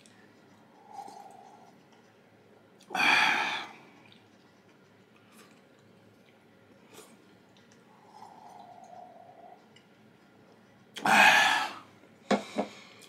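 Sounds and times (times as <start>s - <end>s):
quiet chewing: 0.0s - 2.9s, 3.7s - 11.0s.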